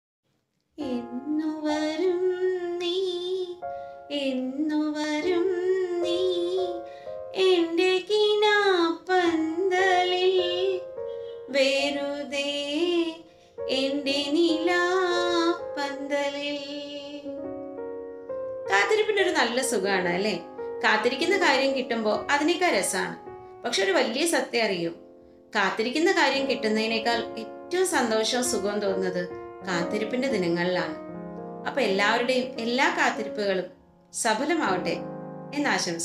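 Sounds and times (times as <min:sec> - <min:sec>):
woman singing with vibrato: 0:00.8 - 0:06.8, 0:07.4 - 0:10.8, 0:11.5 - 0:17.3.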